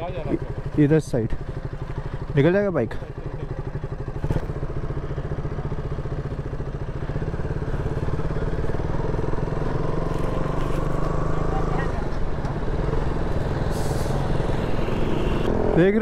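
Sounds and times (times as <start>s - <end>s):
motorcycle engine at low revs: 0.0s - 16.0s.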